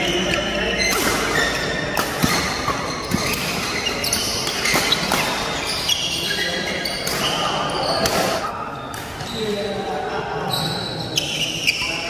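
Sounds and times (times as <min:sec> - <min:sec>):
rackets hitting shuttlecock: 0:00.2 - 0:05.6, 0:06.9 - 0:09.2.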